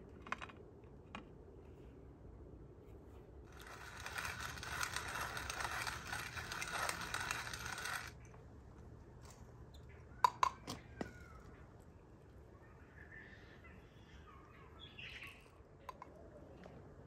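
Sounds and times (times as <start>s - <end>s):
pepper mill grinding: 3.5s - 8.2s.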